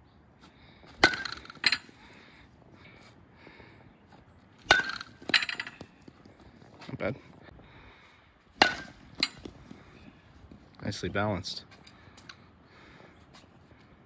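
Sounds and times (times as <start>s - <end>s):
metal bat pinging ball: 1.0s - 1.9s, 4.6s - 6.1s, 8.6s - 9.5s.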